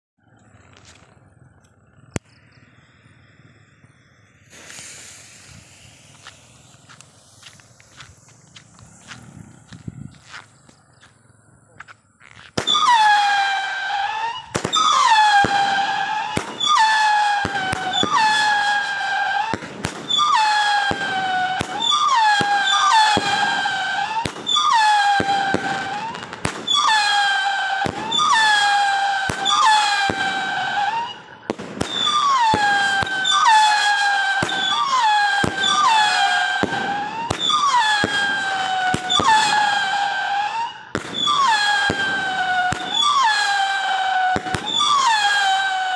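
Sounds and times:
firework whistles falling in pitch: 1.8 - 11.2, 12.2 - 45.9
firework pops: 4.4 - 13.0, 17.4 - 33.6, 34.4 - 40.0, 40.9 - 43.4.

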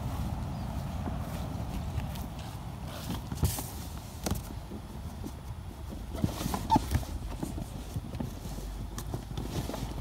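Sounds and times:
stiff plastic rubbing: 5.2 - 10.0
cardboard scraping: 5.9 - 10.0.

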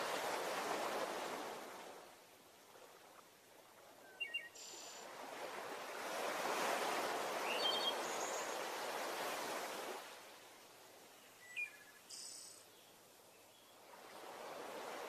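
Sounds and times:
bird chirps: 7.5 - 8.5.

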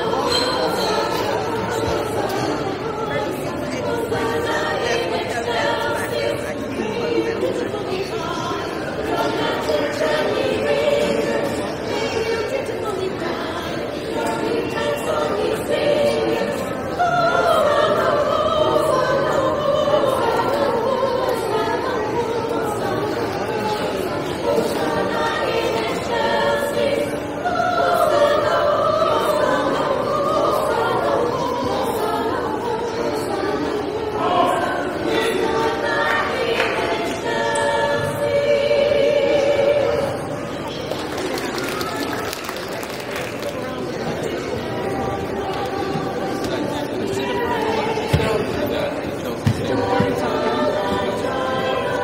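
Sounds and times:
vocal group singing in harmony: 0.0 - 52.0.

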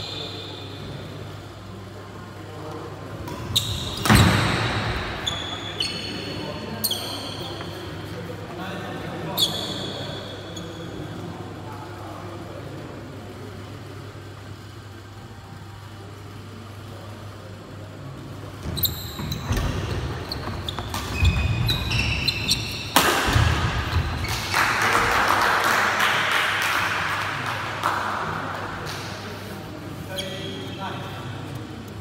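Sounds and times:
low hall hum: 0.0 - 32.0
sneakers squeaking: 3.2 - 8.2, 9.2 - 11.2, 18.5 - 24.7, 29.9 - 31.9
racket hitting shuttlecock: 22.5 - 24.5
crowd cheering: 23.9 - 28.7.

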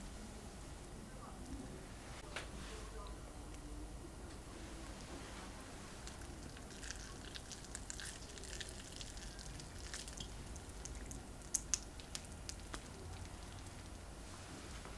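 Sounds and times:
crispy crust crackling: 4.7 - 14.9
sharp crust snaps: 6.0 - 13.9.

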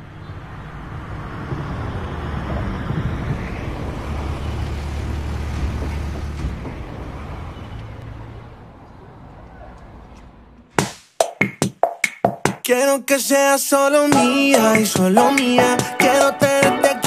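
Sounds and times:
car engine idling: 0.0 - 10.8.

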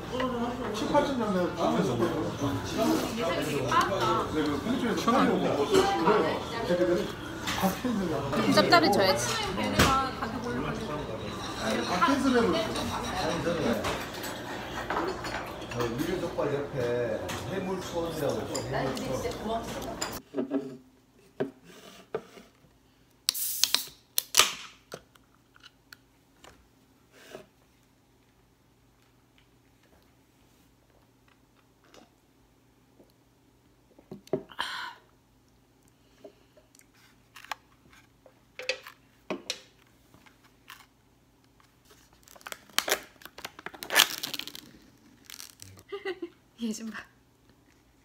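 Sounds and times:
can cracking open with hiss: 23.3 - 24.8
plastic wrapper crinkling: 41.8 - 45.9.

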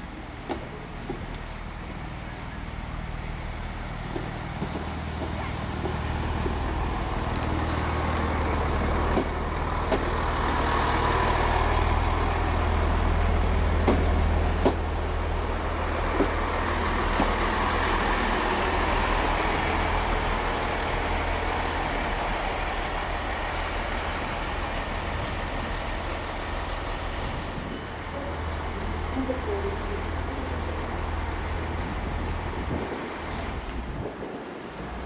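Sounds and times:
diesel train engine drone: 0.0 - 35.0.

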